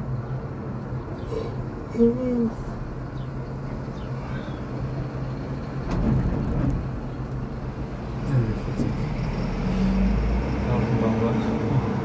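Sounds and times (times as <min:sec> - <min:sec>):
cable car cabin hum: 0:00.0 - 0:09.9.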